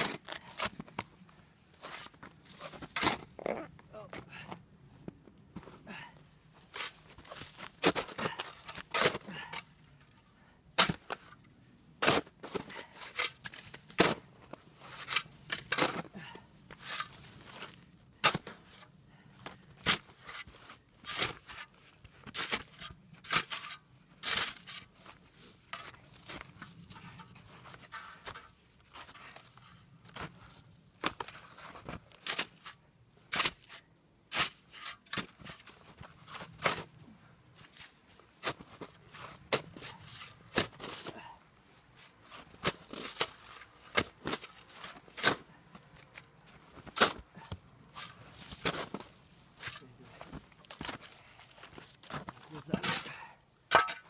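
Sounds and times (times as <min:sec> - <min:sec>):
shovel chopping packed snow: 0:00.0 - 0:00.8, 0:01.8 - 0:03.3, 0:06.7 - 0:09.6, 0:10.8 - 0:11.3, 0:12.0 - 0:16.1, 0:16.7 - 0:18.8, 0:19.8 - 0:29.5, 0:31.0 - 0:37.0, 0:37.6 - 0:41.3, 0:42.0 - 0:45.5, 0:46.7 - 0:51.1, 0:51.7 - 0:54.0.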